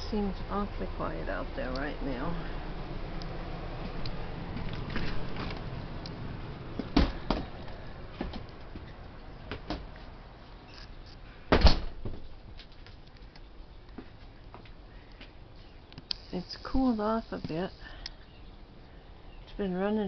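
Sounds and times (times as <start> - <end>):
door banging shut: 6.9 - 7.5, 11.5 - 12.1.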